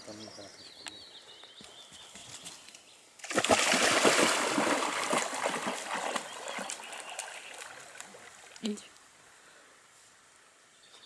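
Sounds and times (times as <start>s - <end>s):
faint bird singing: 0.0s - 3.1s, 6.1s - 9.0s, 10.6s - 11.0s
dog splashing through water: 3.2s - 8.6s.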